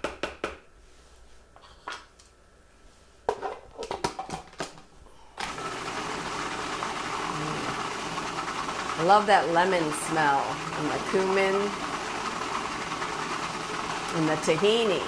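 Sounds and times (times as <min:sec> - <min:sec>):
food processor motor running: 0:05.4 - 0:15.0.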